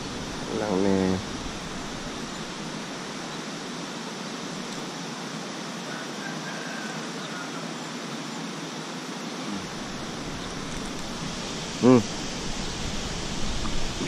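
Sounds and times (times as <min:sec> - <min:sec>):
sea water washing along shore: 0:09.7 - 0:14.0.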